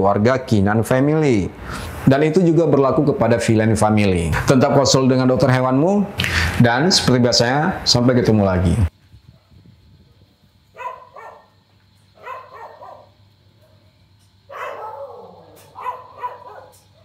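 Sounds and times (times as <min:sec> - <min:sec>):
dogs barking: 0:10.7 - 0:11.6, 0:12.2 - 0:13.9, 0:14.5 - 0:17.0.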